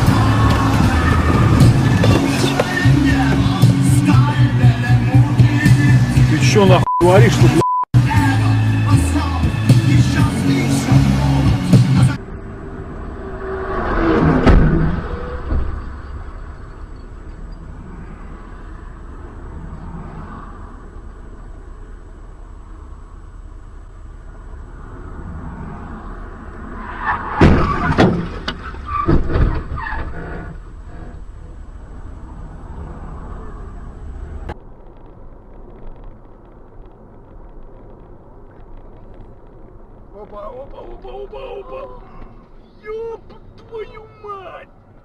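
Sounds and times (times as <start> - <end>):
car driving on highway: 0.0 - 45.0
vehicle road and engine rumble: 0.0 - 45.0.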